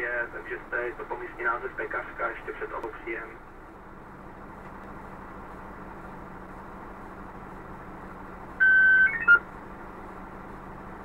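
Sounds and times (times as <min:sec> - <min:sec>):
fire truck engine idling: 0:00.0 - 0:11.0
radio beep: 0:08.6 - 0:09.4
radio chirps: 0:08.6 - 0:09.4.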